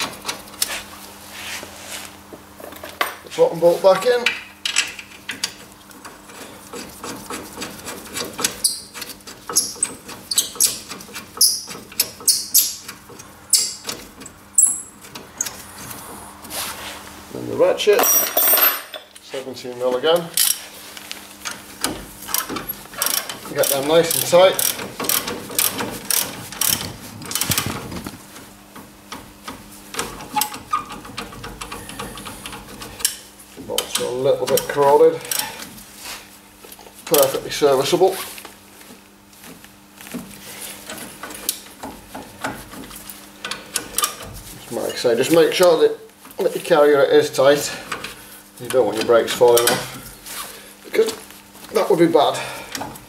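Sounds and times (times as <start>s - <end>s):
ratchet wrench clicking: 22.3s - 27.6s.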